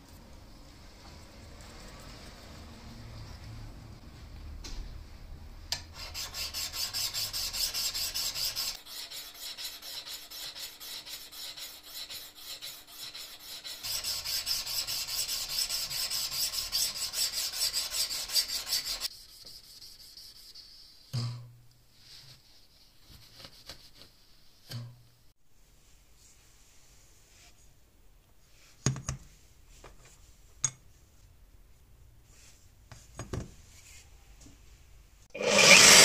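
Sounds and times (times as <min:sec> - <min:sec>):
sanding stick scraping knife blade: 0:05.9 - 0:20.8, 0:35.4 - 0:36.0.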